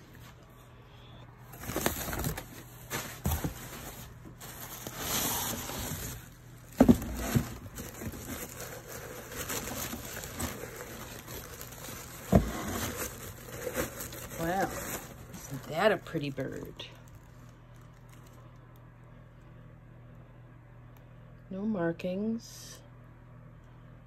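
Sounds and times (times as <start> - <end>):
packing paper rustling: 1.4 - 18.6.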